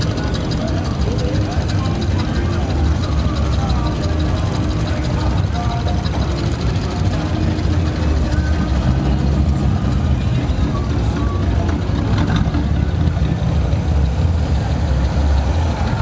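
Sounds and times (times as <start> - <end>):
car engine rumbling past: 0.0 - 16.0
other car engines: 0.0 - 16.0.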